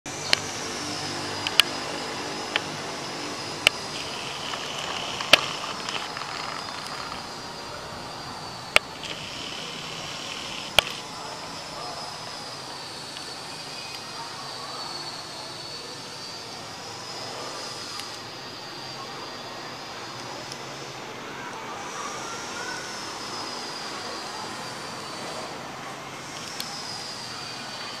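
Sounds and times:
high wavering hiss: 0:00.1 - 0:28.0
sharp clicks: 0:01.4 - 0:01.8, 0:03.6 - 0:07.2, 0:08.7 - 0:11.0.

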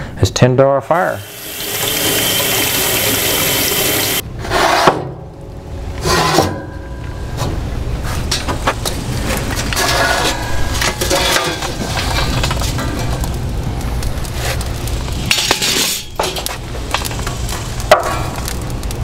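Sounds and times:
coals clinking and rattling: 0:01.3 - 0:04.2, 0:08.0 - 0:19.0
metal chimney scraping on grate: 0:01.4 - 0:05.2, 0:06.0 - 0:13.4, 0:14.2 - 0:18.6.

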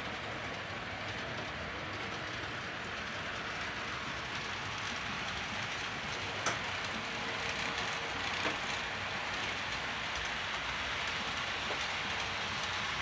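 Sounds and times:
model train rolling hiss: 0:02.4 - 0:13.0
faint clicks of track: 0:06.0 - 0:07.0, 0:07.6 - 0:10.4, 0:11.0 - 0:12.3.

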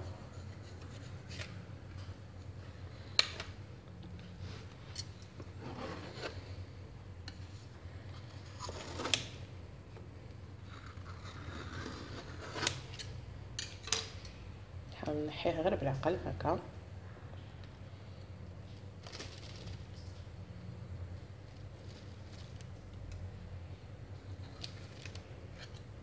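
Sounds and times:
knife scraping metal frame: 0:10.7 - 0:14.0.

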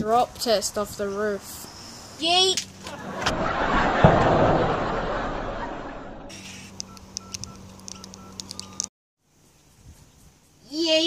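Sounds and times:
sharp clicks: 0:06.7 - 0:08.9
phone keypad beeps: 0:06.8 - 0:08.9.

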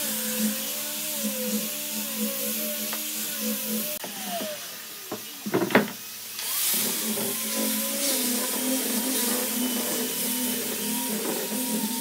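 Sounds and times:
angle grinder sanding wood: 0:00.0 - 0:12.0
knocks of wood on bench: 0:05.1 - 0:06.0.

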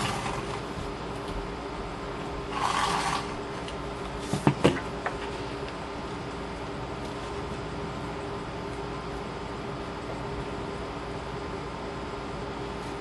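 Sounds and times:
background hum: 0:00.0 - 0:13.0
tape runner rasping on paper: 0:02.5 - 0:03.4.

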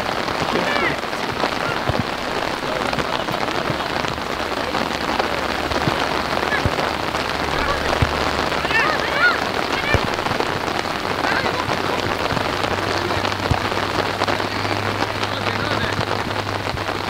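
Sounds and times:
rain pattering: 0:00.0 - 0:17.0.

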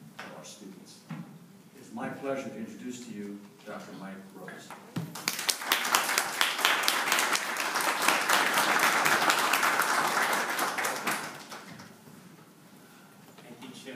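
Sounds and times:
audience applauding: 0:05.1 - 0:11.9.

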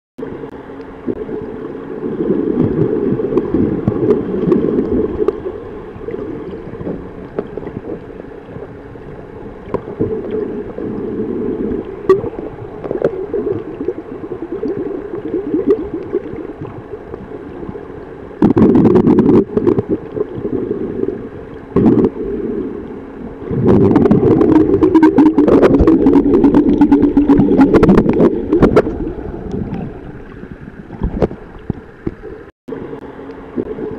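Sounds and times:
water gurgling and rumbling: 0:00.2 - 0:33.9.

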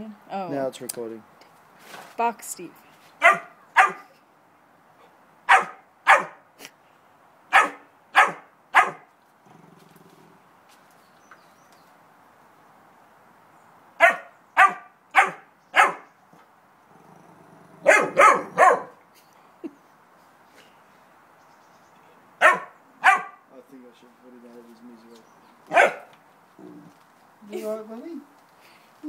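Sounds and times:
puppy barking: 0:03.2 - 0:04.1, 0:05.5 - 0:06.4, 0:07.5 - 0:09.1, 0:14.0 - 0:16.1, 0:17.8 - 0:19.0, 0:22.4 - 0:23.5, 0:25.7 - 0:26.1.

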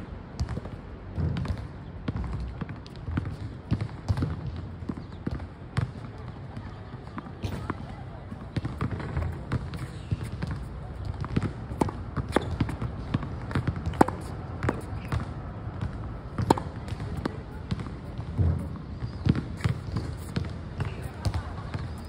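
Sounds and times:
ball bouncing on court: 0:00.3 - 0:22.0
racket hitting tennis ball: 0:08.4 - 0:22.0.

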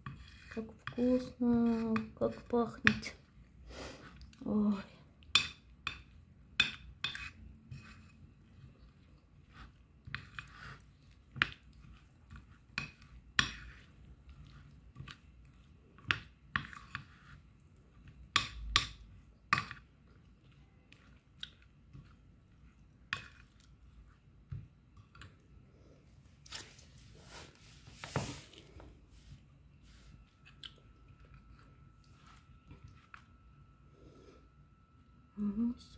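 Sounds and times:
metal spoon scraping a plate: 0:00.0 - 0:02.5, 0:06.8 - 0:08.6, 0:09.4 - 0:10.8, 0:12.8 - 0:13.9.

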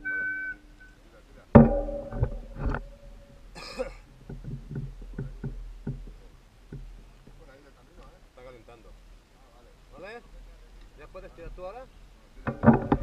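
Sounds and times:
breathy cough-like burst: 0:03.6 - 0:04.0.

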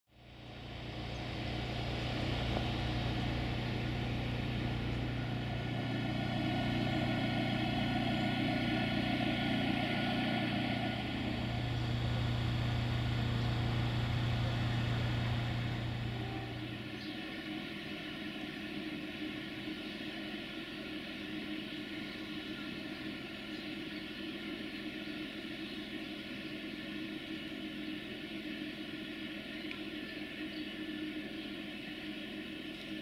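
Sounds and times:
diesel engine running: 0:00.2 - 0:17.5.

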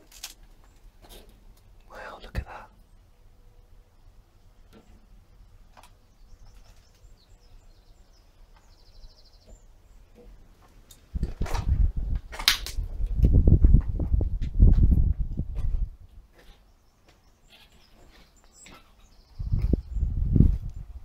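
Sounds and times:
faint bird chirps: 0:05.9 - 0:10.4, 0:16.4 - 0:20.9
wind buffeting microphone: 0:11.1 - 0:16.4, 0:19.2 - 0:21.0.

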